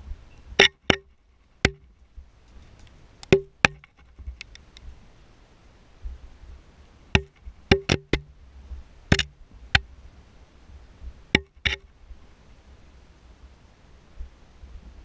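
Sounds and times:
knocks ringing in a well shaft: 0.6s - 2.0s, 3.3s - 4.2s, 7.2s - 8.3s, 11.4s - 11.8s.

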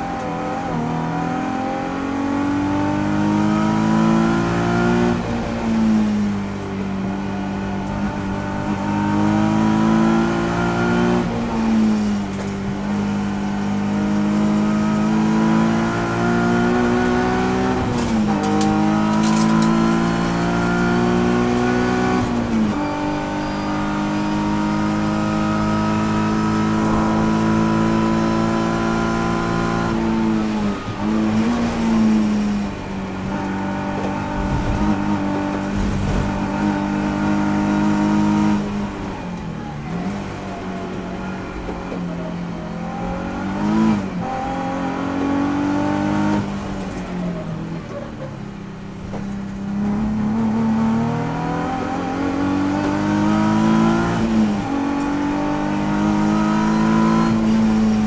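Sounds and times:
race car engine revving: 0.0s - 48.2s, 49.0s - 58.0s.

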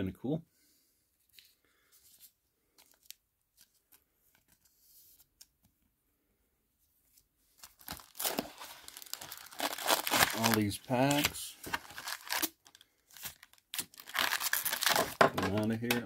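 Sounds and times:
card pack wrappers crinkling: 7.6s - 16.0s.

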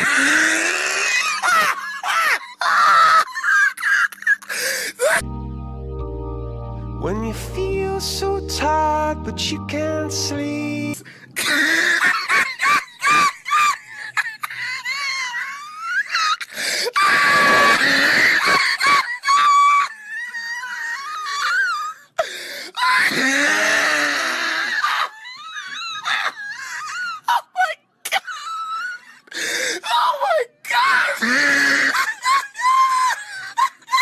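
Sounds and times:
person wailing and screaming: 0.0s - 4.2s, 14.6s - 22.0s, 29.8s - 34.0s.

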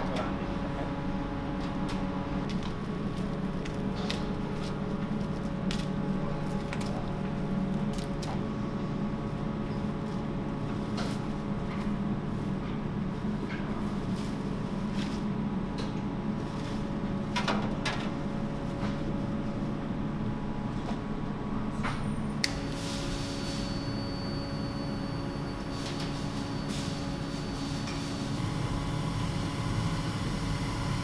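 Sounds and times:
thin high whine: 23.4s - 28.0s.

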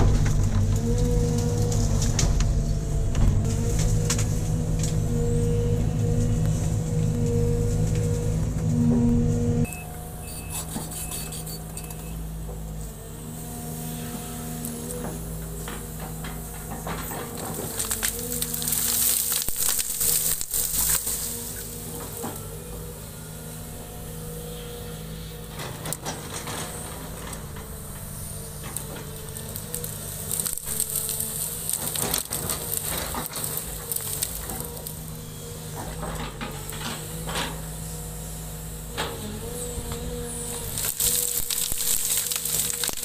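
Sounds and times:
branches cracking and snapping: 0.0s - 5.1s, 15.6s - 22.6s, 27.3s - 36.9s, 39.6s - 43.0s
excavator diesel engine running: 0.0s - 43.0s.

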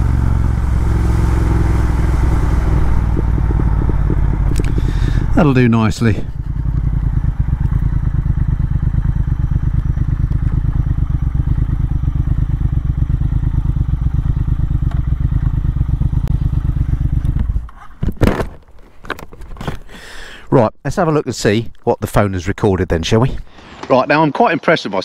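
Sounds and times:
motorcycle engine idling: 0.0s - 17.8s
knocks and rustles: 17.3s - 19.9s.

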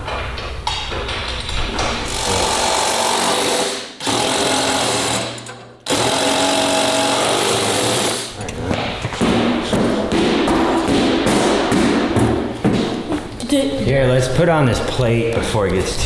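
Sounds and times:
impact driver bursts: 2.1s - 8.3s.

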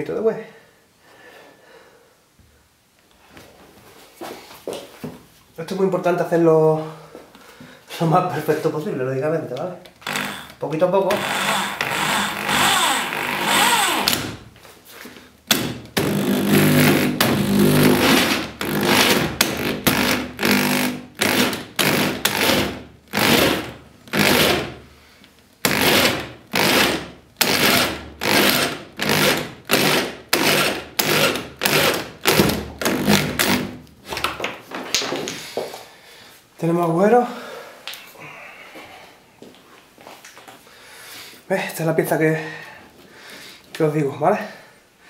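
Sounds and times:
drill hole saw cutting plastic: 10.0s - 14.3s, 16.0s - 24.7s, 25.6s - 33.8s.

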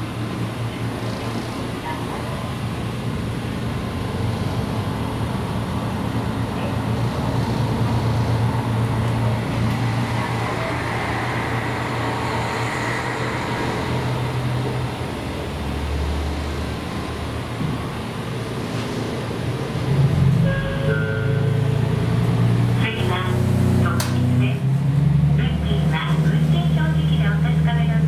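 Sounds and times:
diesel railcar engine idling: 0.0s - 28.0s.

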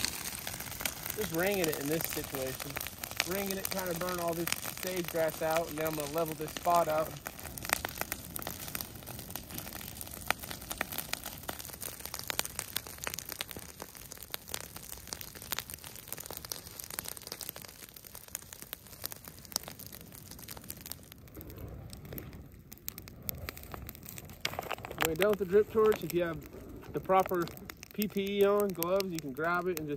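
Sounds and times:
dry leaves crackling as they burn: 0.0s - 29.9s.

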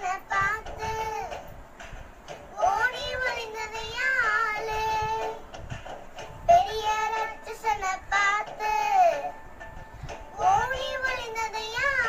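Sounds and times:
girl singing: 0.0s - 1.5s, 2.5s - 5.5s, 6.4s - 9.4s, 10.3s - 12.0s.

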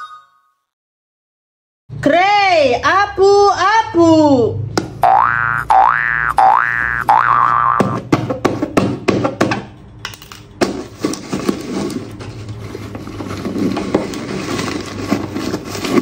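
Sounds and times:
paper crackling and rustling: 10.9s - 16.0s.

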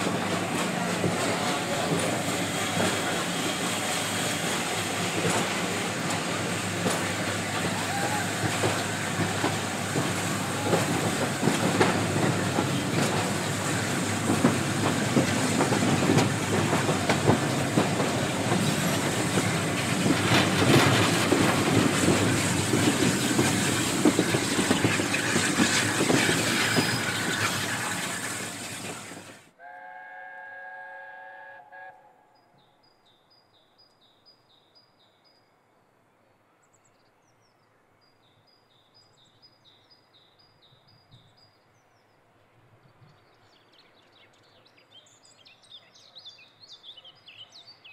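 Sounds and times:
train wheels clattering over rail joints: 0.0s - 29.4s
distant locomotive chime whistle: 29.6s - 32.6s
faint birdsong: 31.9s - 47.9s.

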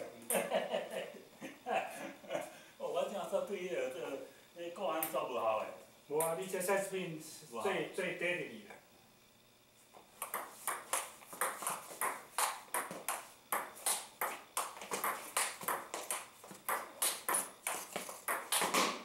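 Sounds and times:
ball clicking on table: 10.2s - 18.8s
table tennis ball hitting paddles: 10.2s - 19.0s.

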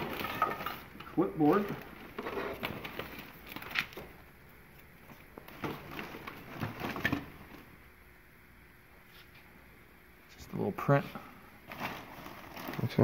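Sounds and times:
rustling: 0.0s - 7.8s, 11.6s - 13.0s.

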